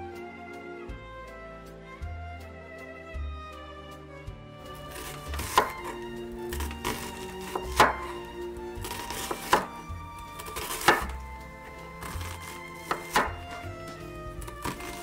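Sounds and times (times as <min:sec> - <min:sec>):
waltz music: 0:00.0 - 0:15.0
knife chopping on wooden board: 0:04.9 - 0:11.2, 0:12.0 - 0:15.0.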